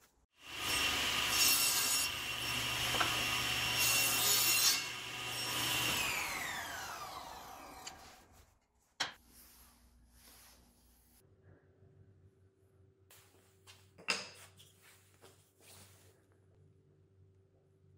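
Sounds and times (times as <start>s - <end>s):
table saw whine: 0.4s - 8.3s
saw blade cutting plywood: 0.4s - 8.4s.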